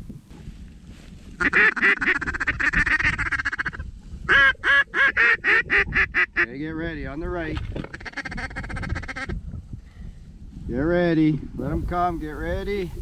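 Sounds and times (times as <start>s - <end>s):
duck call chattering and quacking: 1.4s - 6.5s, 7.9s - 9.4s.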